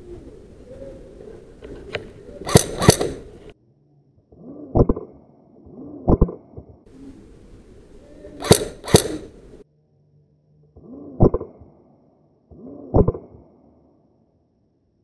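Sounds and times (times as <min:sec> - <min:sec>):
airsoft gun shots: 0:02.4 - 0:03.3, 0:08.4 - 0:09.4.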